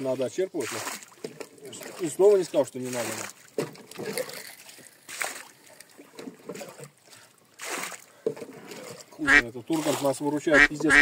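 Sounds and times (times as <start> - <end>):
water splashing in a rowboat: 0.0 - 11.0.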